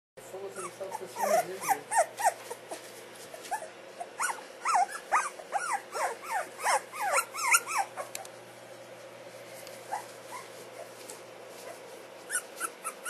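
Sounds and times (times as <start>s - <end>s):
puppies whimpering: 0.5s - 2.8s, 3.4s - 8.3s, 9.8s - 11.0s, 11.6s - 13.0s.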